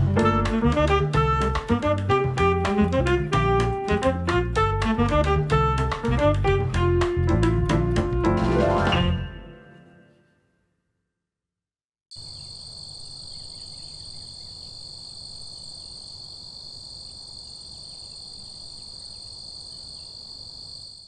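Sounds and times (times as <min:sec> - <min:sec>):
insects trilling: 0:12.1 - 0:21.0.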